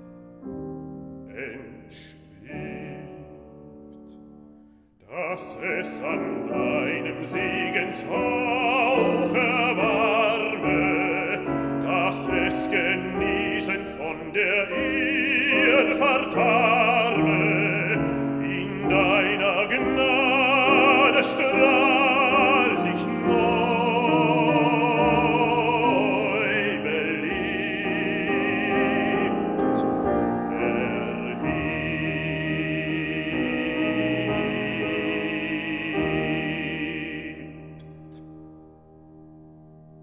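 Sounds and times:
piano accompaniment: 0:00.0 - 0:40.0
baritone singing: 0:01.0 - 0:04.4, 0:05.0 - 0:38.6.

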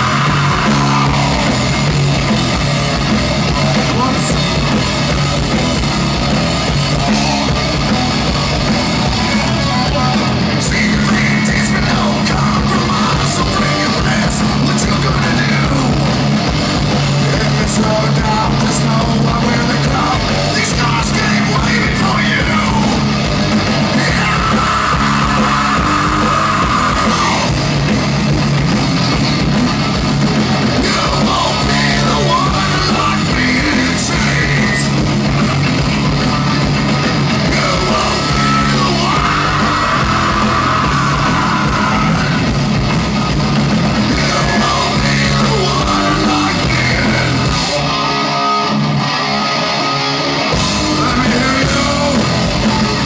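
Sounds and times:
singer yelling into microphone: 0:00.0 - 0:01.9, 0:03.5 - 0:04.6, 0:06.9 - 0:16.1, 0:17.2 - 0:23.1, 0:23.9 - 0:27.6, 0:30.7 - 0:35.0, 0:37.4 - 0:42.5, 0:44.0 - 0:49.8, 0:50.6 - 0:53.0
heavy metal band playing: 0:00.0 - 0:53.0.

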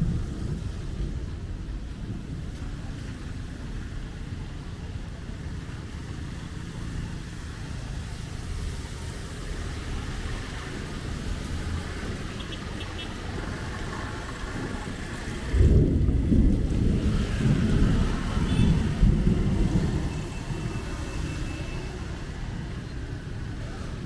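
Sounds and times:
cars passing on wet street: 0:00.0 - 0:24.0.

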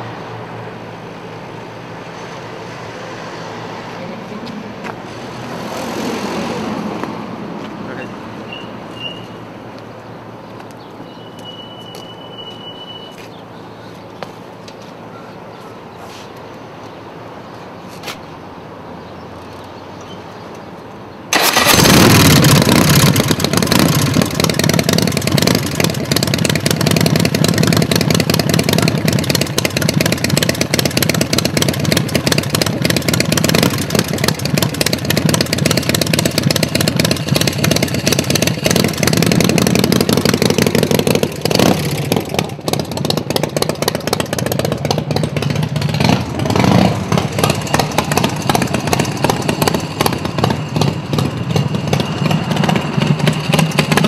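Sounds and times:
motorcycle engine starting and revving: 0:21.3 - 0:54.0.

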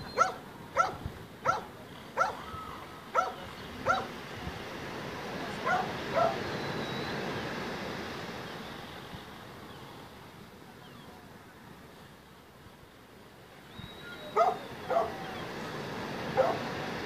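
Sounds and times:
surf: 0:00.0 - 0:17.0
wind: 0:00.0 - 0:17.0
dog barking: 0:00.2 - 0:02.4, 0:03.1 - 0:04.1, 0:05.6 - 0:06.4, 0:14.4 - 0:15.2, 0:16.4 - 0:16.6.

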